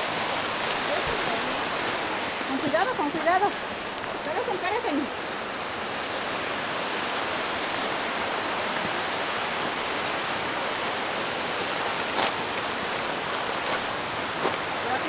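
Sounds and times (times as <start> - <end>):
creek rushing over rocks: 0.0 - 15.0.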